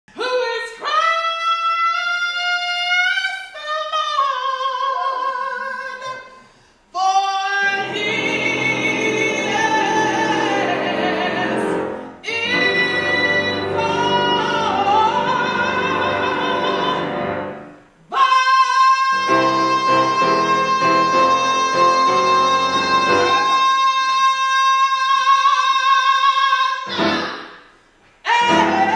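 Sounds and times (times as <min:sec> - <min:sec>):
woman singing: 0:00.2 - 0:06.3, 0:07.0 - 0:27.6, 0:28.3 - 0:28.9
grand piano accompaniment: 0:07.6 - 0:18.0, 0:19.1 - 0:23.8, 0:26.8 - 0:27.6, 0:28.3 - 0:28.9.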